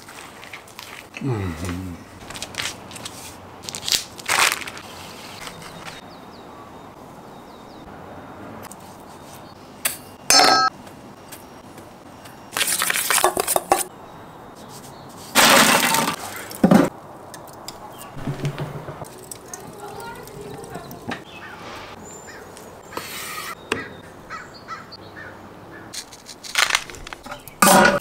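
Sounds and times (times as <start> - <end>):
rustling and scraping: 2.2 - 6.0, 25.9 - 28.0
knife slitting plastic wrap: 2.3 - 6.0, 26.0 - 27.3
glass clinking on steel bowl: 10.3 - 10.7.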